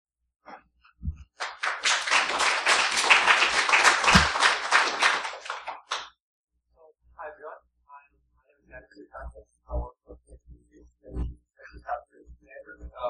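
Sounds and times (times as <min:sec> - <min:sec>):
audience applauding: 0:01.4 - 0:06.1.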